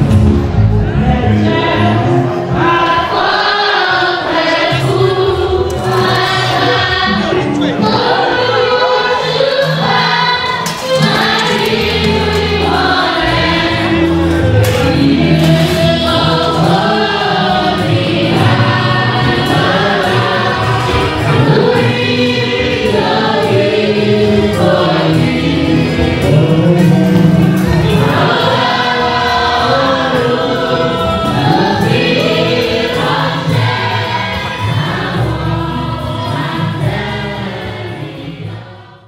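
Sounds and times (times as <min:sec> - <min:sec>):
congregation singing a hymn: 0:00.0 - 0:39.0.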